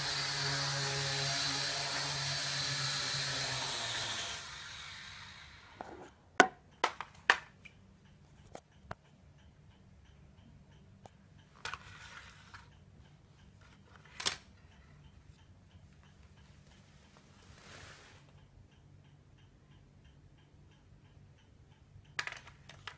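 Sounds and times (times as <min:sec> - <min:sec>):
faint regular ticking: 0:07.6 - 0:17.6, 0:18.2 - 0:22.9
rustle: 0:17.4 - 0:18.2.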